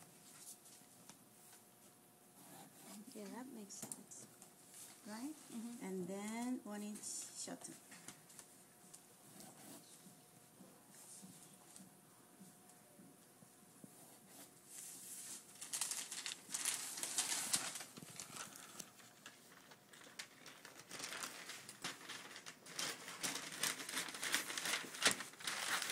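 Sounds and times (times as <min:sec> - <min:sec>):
paper rustling and crinkling: 0:00.2 - 0:01.7, 0:14.2 - 0:25.9.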